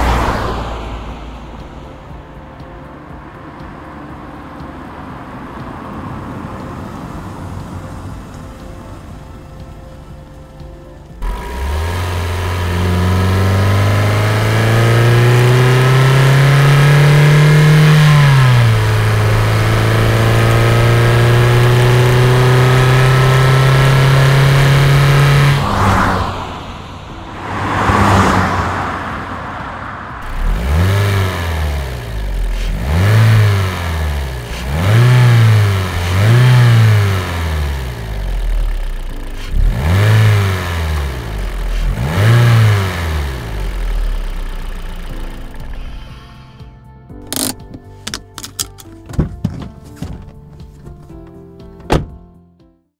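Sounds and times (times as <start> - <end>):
car passing by whooshes: 0.0 - 9.0, 12.7 - 33.4
car engine revving: 0.0 - 46.6.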